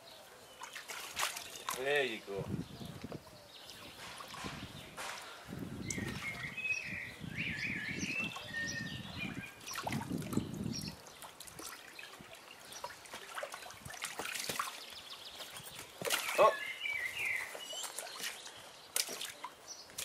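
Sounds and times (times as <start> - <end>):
water sloshing and splashing: 0.5 - 2.3, 3.8 - 6.6, 9.2 - 20.0.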